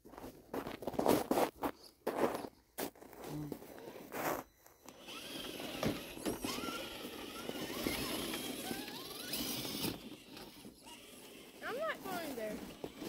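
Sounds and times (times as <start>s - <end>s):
electric motor whining: 4.8s - 13.0s.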